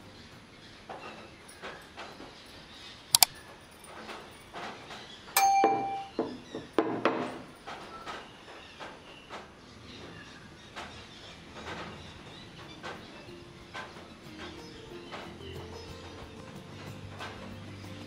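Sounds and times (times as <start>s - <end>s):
sharp double click: 3.1s - 3.4s
bell ding: 5.4s - 6.2s.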